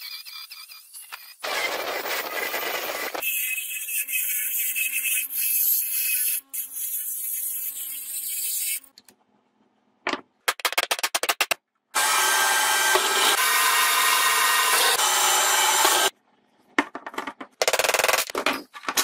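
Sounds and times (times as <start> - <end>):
drill press drilling brass: 12.0 - 16.1.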